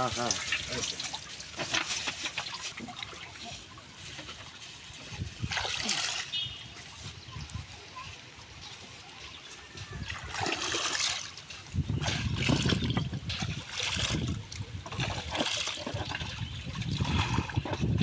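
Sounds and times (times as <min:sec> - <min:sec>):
hand splashing in river water: 0:05.3 - 0:07.0, 0:10.0 - 0:17.7.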